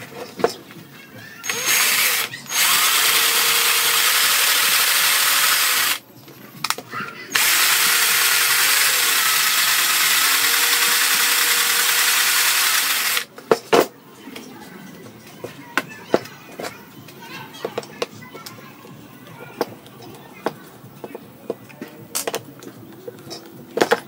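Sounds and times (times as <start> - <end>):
cordless drill spinning: 1.4 - 6.0, 7.3 - 13.3.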